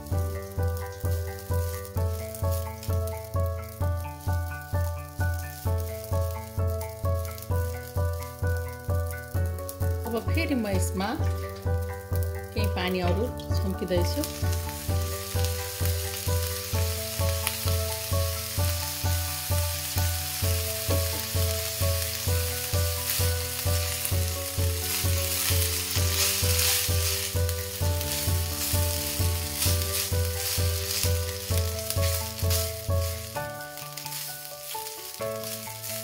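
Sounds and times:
background music with low beat: 0.0s - 36.0s
flour sizzling in a hot pan: 0.0s - 36.0s
spatula stirring in pan: 14.2s - 36.0s.

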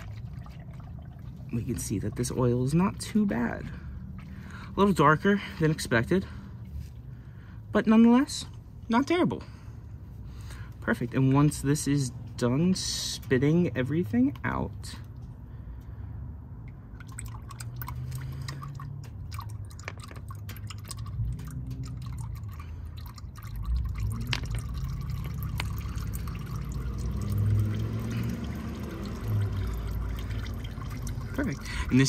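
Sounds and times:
oil trickling into drain pan: 0.0s - 7.5s, 16.6s - 32.0s
small splashes and drips: 0.0s - 7.7s, 8.4s - 32.0s.

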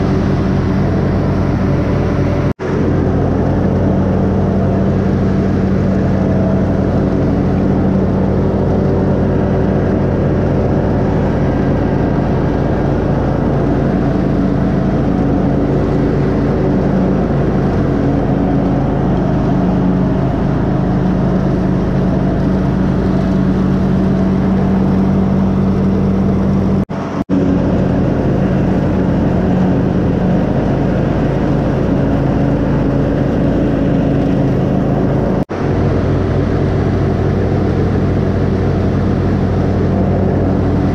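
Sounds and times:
riding lawn mower engine: 0.0s - 40.9s.

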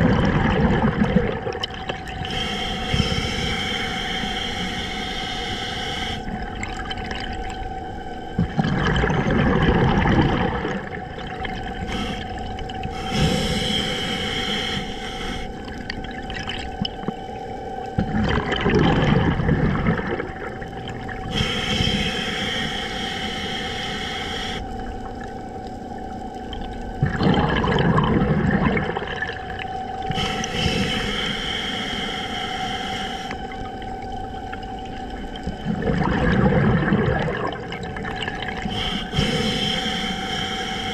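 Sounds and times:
exhaled bubbles underwater: 0.0s - 40.9s
faint steady hum: 0.0s - 40.9s
hissing inhale through regulator: 2.1s - 6.6s, 11.6s - 16.1s, 21.2s - 24.8s, 30.0s - 33.9s, 38.2s - 40.9s.

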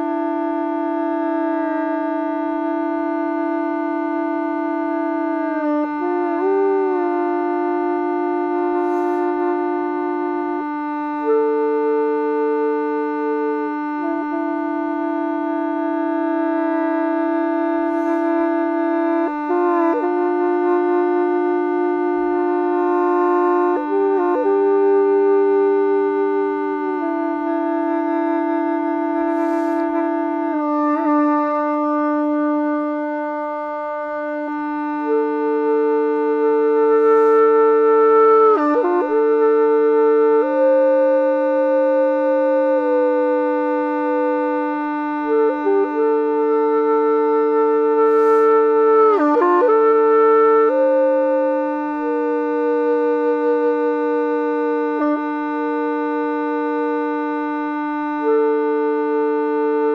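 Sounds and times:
gourd flute melody with drone: 0.0s - 59.9s
player breathing: 8.8s - 9.4s, 17.9s - 18.4s, 29.3s - 30.0s.

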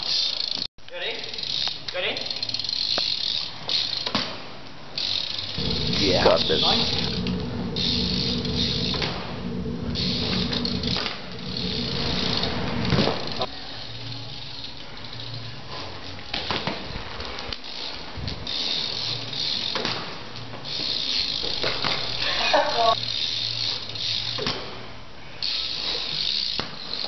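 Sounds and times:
bike rolling on tarmac: 1.4s - 4.2s, 4.9s - 27.0s
bike hitting the ground: 10.0s - 13.5s, 16.3s - 17.4s, 18.4s - 22.2s, 24.2s - 24.8s.

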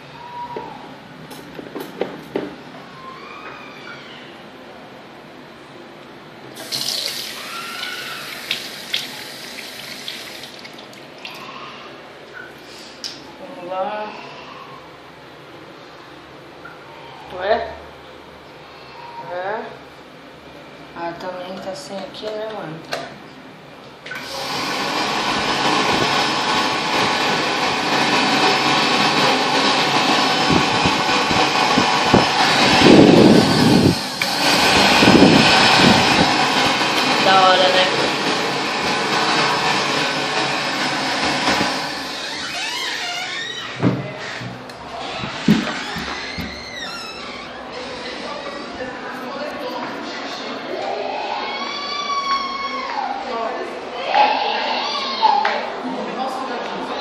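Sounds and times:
hand dryer blowing air: 6.6s - 10.5s, 24.1s - 42.6s
water running from tap: 6.6s - 11.4s.

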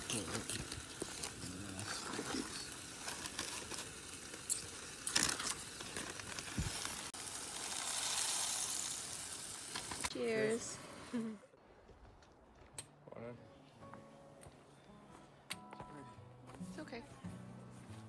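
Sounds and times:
steady hiss: 0.0s - 11.4s.

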